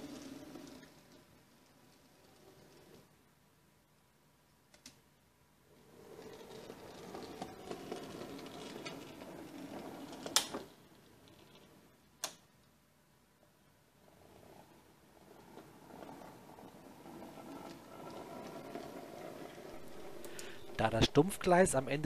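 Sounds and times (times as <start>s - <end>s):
model train motor whirring: 5.9s - 10.7s, 14.4s - 21.2s.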